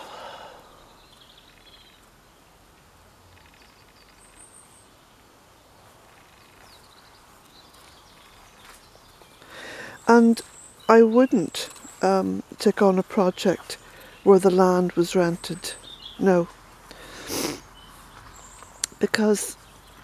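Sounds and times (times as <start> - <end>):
faint bird chirps: 0.0 - 2.4, 3.2 - 12.1
faint outdoor ambience: 0.0 - 20.0.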